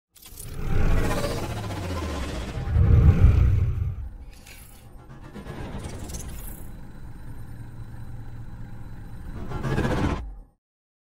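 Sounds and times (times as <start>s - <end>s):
deep rumbling whoosh: 0.6s - 4.3s.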